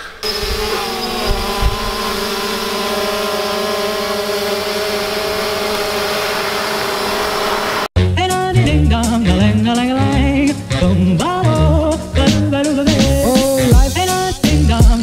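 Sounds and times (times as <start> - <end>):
drone propellers buzzing: 0.0 - 7.9.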